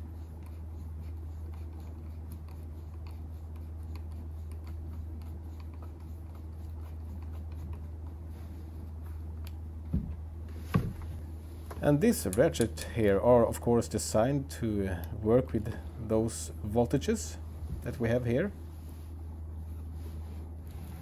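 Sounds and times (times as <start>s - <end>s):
steady low hum: 0.0s - 21.0s
dull thump: 9.9s - 11.1s.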